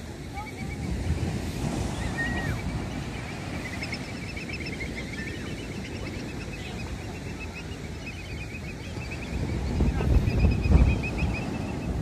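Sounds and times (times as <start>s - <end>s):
surf rushing: 0.0s - 12.0s
wind: 0.0s - 12.0s
gulls calling: 0.1s - 12.0s.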